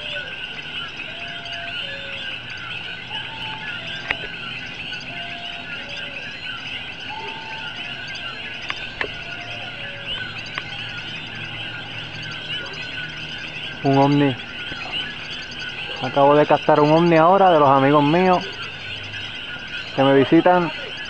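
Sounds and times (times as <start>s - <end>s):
frogs chirping: 0.0s - 21.0s
sharp clicks: 8.6s - 9.2s, 10.4s - 10.8s.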